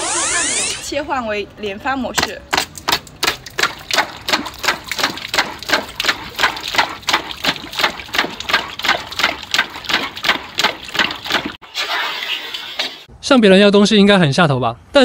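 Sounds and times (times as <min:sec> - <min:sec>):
water spurts hitting bucket: 0:02.1 - 0:13.1
toy water gun rapid firing: 0:02.5 - 0:11.6.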